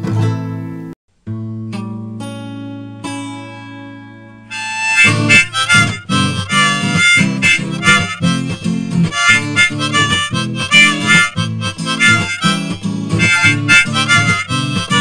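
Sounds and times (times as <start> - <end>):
instrumental music with beat: 4.5 - 15.0.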